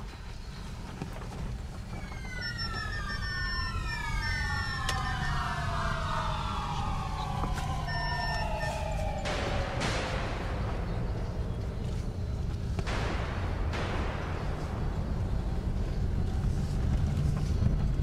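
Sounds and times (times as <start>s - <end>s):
car driving on dirt track: 0.0s - 5.6s, 9.2s - 18.0s
gliding multi-tone whine: 0.0s - 18.0s
short beeps: 2.1s - 5.5s, 7.9s - 8.8s.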